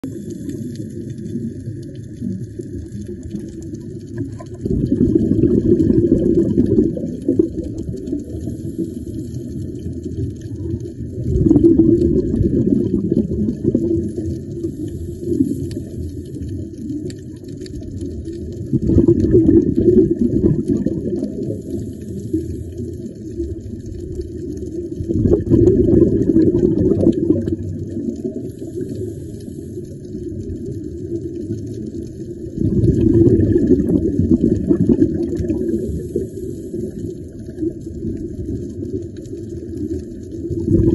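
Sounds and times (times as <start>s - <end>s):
underwater exhaust bubbles: 0.0s - 40.9s
air bubbling underwater: 4.1s - 8.5s, 10.6s - 15.6s, 18.6s - 21.8s, 24.9s - 28.5s, 32.5s - 36.3s, 40.4s - 40.9s.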